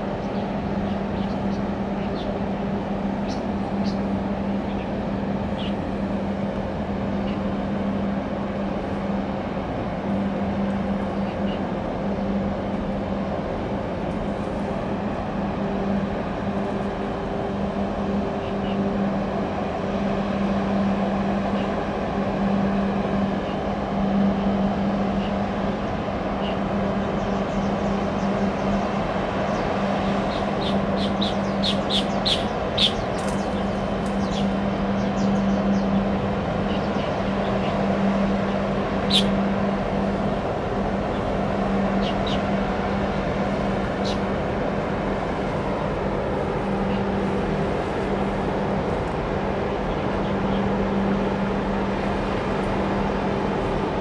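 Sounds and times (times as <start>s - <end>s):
engine drone: 0.0s - 54.0s
small birds chirping: 3.2s - 4.1s, 4.7s - 5.8s, 30.3s - 37.8s, 39.1s - 39.4s.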